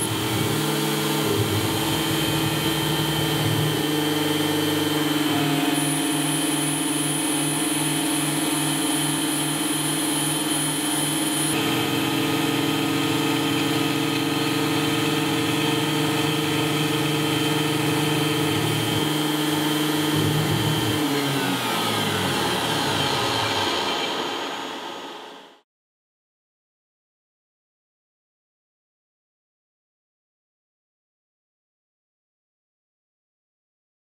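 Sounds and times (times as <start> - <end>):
drive motors humming in pulses: 0.0 - 11.8, 12.6 - 23.5
milling spindle whine: 0.0 - 25.6.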